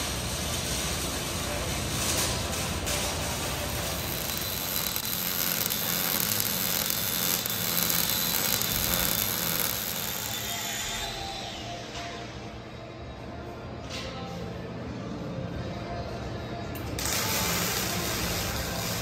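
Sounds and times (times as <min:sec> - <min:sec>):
workshop hiss and hum: 0:00.0 - 0:19.0.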